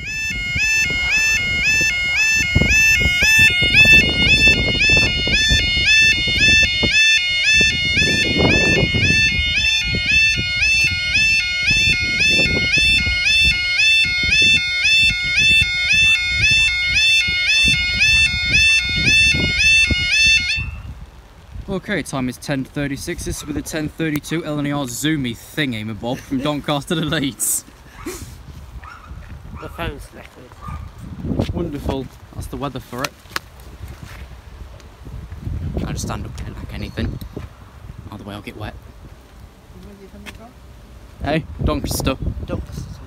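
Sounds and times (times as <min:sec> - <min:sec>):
electronic two-tone warning alarm: 0:00.0 - 0:20.8.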